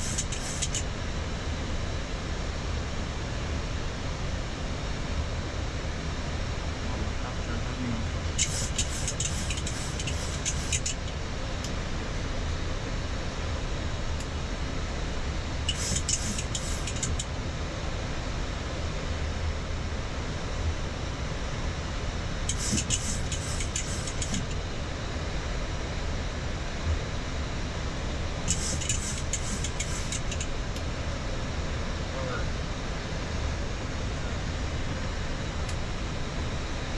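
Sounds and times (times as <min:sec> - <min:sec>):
rapid high-pitched clicking: 0:00.0 - 0:00.9, 0:08.4 - 0:11.2, 0:15.7 - 0:17.3, 0:22.5 - 0:24.6, 0:28.5 - 0:30.5.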